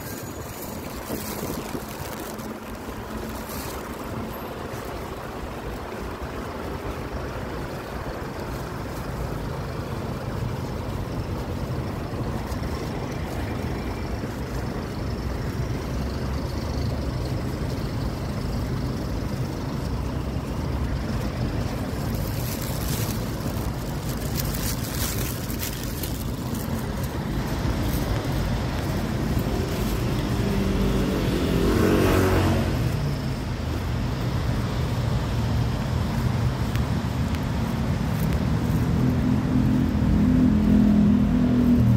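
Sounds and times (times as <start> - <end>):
wind buffeting microphone: 0.0 - 15.9
street traffic: 0.0 - 41.9.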